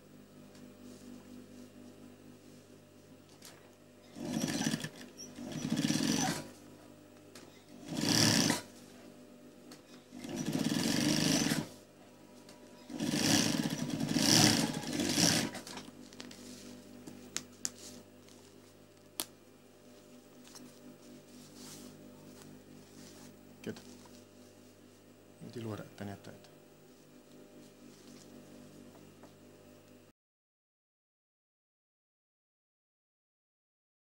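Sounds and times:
sewing machine stitching: 0:04.1 - 0:06.5, 0:07.7 - 0:08.7, 0:10.1 - 0:11.8, 0:12.8 - 0:15.9
steady low hum: 0:15.5 - 0:29.8.

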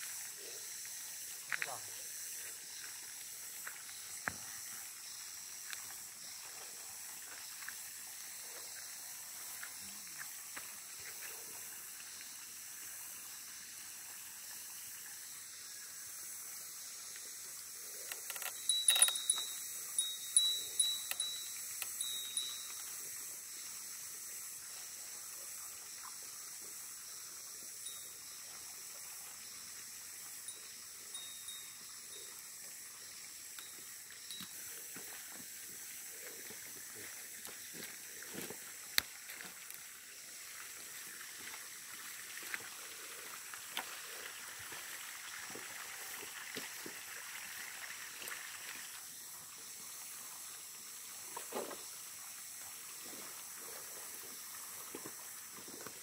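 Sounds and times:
high-pitched background hiss: 0:00.0 - 0:56.0
sharp clicks: 0:18.1 - 0:19.5.

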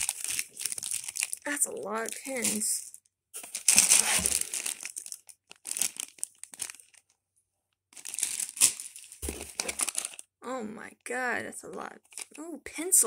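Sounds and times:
plastic bags crinkling and rustling: 0:00.0 - 0:07.2, 0:07.9 - 0:10.3, 0:12.0 - 0:12.4.

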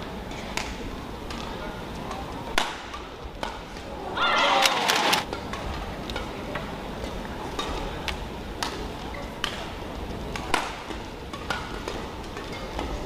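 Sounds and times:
low hall background: 0:00.0 - 0:13.0
shuttlecock hit by rackets: 0:02.5 - 0:03.6, 0:10.3 - 0:12.9.

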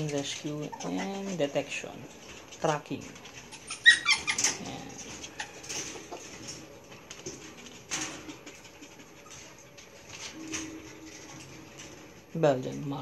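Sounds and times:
light clicks and scrabbling: 0:00.0 - 0:13.0
puppy yelp: 0:03.5 - 0:04.6.

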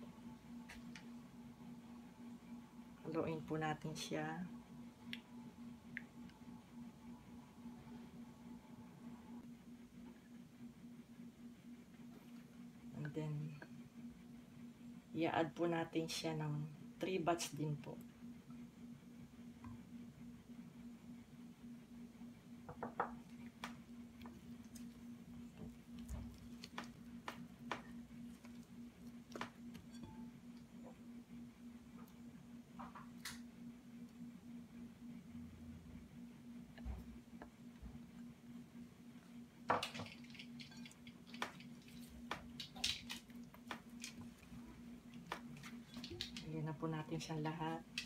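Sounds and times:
steady low hum: 0:00.0 - 0:48.0
batter squishing: 0:23.4 - 0:29.7.

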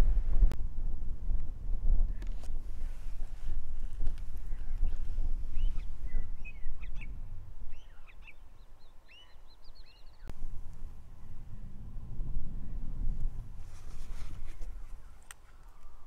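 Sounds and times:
wind rumbling on microphone: 0:00.0 - 0:16.0
small bird chirping: 0:04.4 - 0:10.3.

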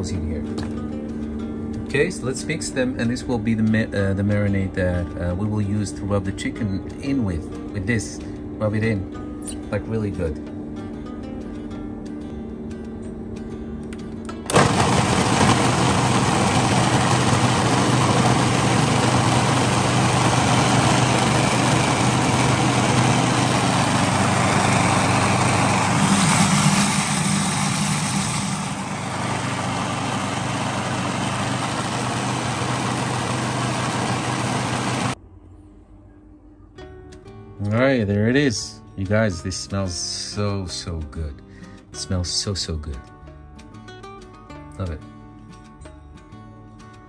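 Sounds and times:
food processor chopping: 0:14.4 - 0:35.2
food processor motor hum: 0:14.4 - 0:35.2.

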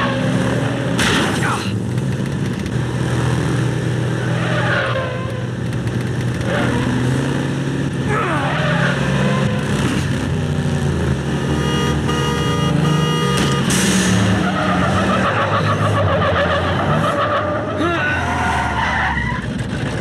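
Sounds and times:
road and tyre noise: 0:00.0 - 0:20.0
vehicles passing by: 0:00.0 - 0:20.0
heavy truck engine running: 0:05.2 - 0:18.7.

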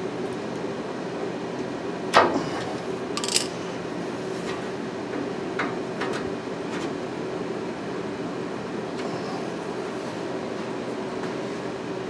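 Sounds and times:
pliers metal clicks and clinks: 0:03.2 - 0:03.6.

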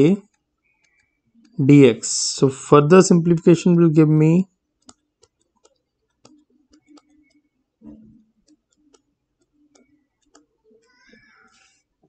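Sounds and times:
stylus tapping on a tablet: 0:04.8 - 0:10.5.

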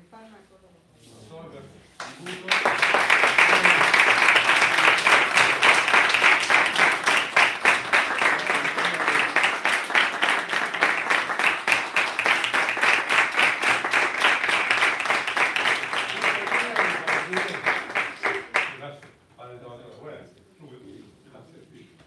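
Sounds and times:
audience applauding: 0:02.0 - 0:19.1.

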